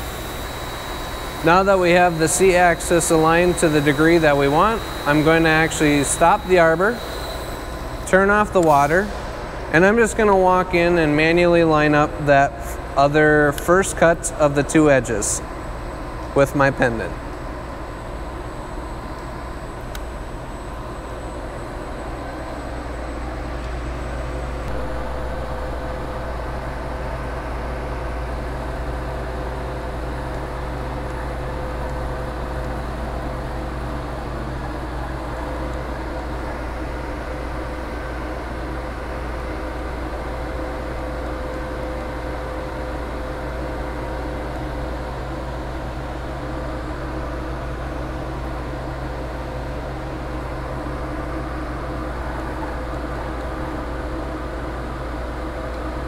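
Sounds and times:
low machinery hum: 0.0s - 56.0s
thin steady whine: 0.0s - 56.0s.

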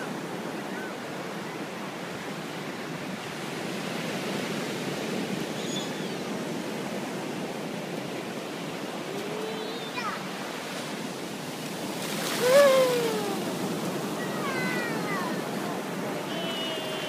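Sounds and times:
ocean surf washing onto beach: 0.0s - 17.0s.

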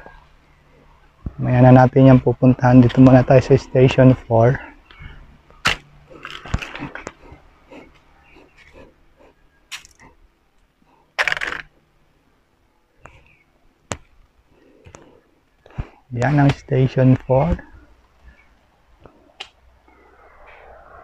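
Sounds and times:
footsteps on concrete steps: 13.0s - 17.8s.

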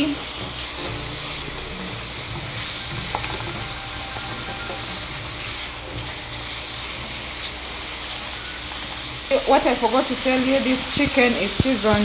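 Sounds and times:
chicken sizzling in a pan: 0.0s - 12.0s
wooden spatula scraping a pan: 0.3s - 7.9s.

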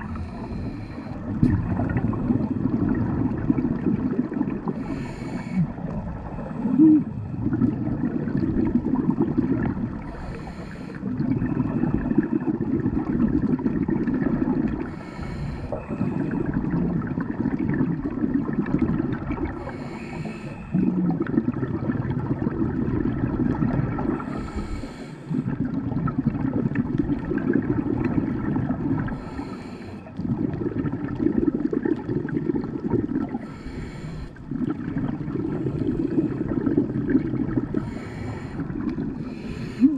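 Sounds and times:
exhaled air bubbling underwater: 0.0s - 39.9s
regulator inhale hiss: 0.1s - 1.3s, 4.8s - 5.8s, 10.0s - 11.1s, 14.8s - 16.2s, 19.6s - 20.7s, 24.2s - 25.5s, 29.1s - 30.1s, 33.4s - 34.4s, 37.8s - 39.9s.

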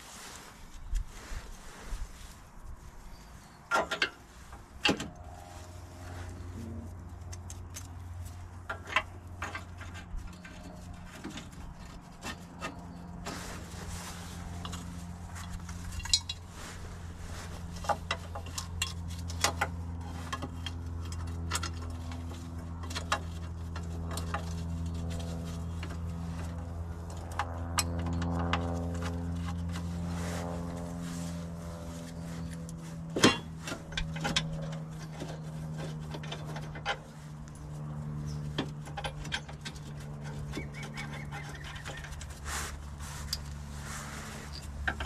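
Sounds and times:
steady low hum: 0.0s - 45.0s
metal tools clinking: 15.8s - 16.5s.

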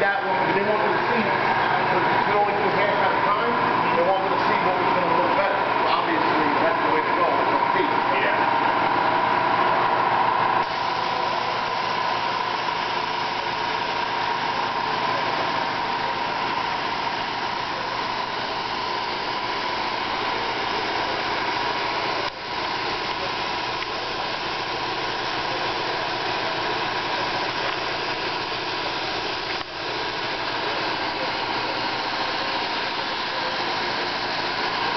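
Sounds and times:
spray equipment hum and hiss: 10.6s - 34.9s.

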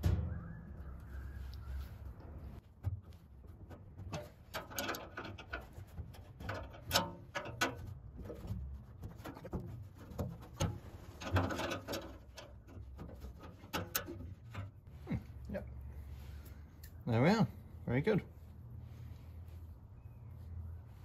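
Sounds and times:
metallic clicks and scrapes: 1.5s - 15.0s.

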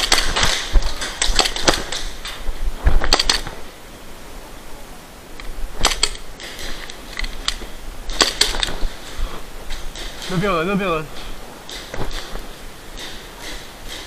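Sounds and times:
airsoft pistols firing: 0.0s - 2.3s, 3.0s - 3.6s, 5.8s - 11.1s.

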